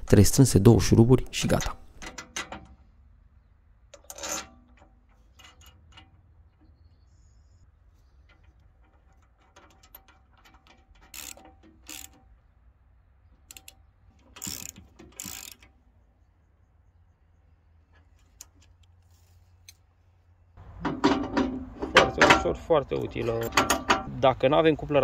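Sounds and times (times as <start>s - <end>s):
metal clicks and rattles: 1.3s - 3.0s, 3.9s - 6.9s, 8.0s - 12.5s, 13.3s - 15.9s, 17.8s - 19.8s, 20.6s - 24.2s
short loud metal noises: 20.6s - 24.2s.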